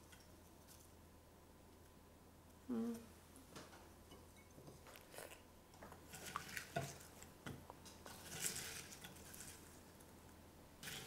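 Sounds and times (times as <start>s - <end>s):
soft squishing of sticky food: 4.2s - 11.0s.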